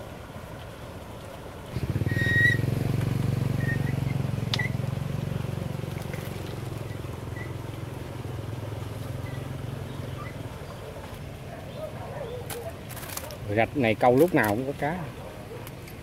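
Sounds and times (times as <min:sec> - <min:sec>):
small engine pulsing drone: 0:01.7 - 0:11.8.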